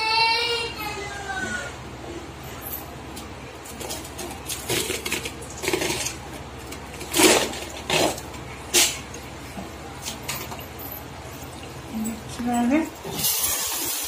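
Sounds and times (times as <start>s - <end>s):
aluminium foil crinkling: 3.7s - 9.0s.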